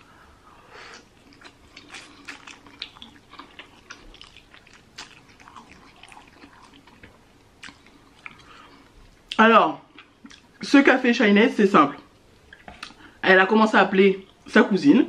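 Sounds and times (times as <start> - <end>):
chewing noodles with mouth smacks: 0.9 - 9.0.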